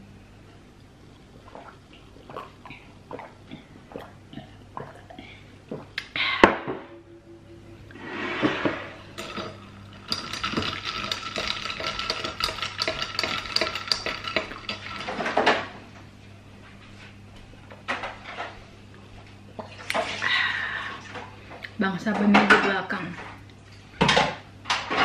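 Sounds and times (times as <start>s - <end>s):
spoon clinking ice in glass: 9.2s - 15.3s.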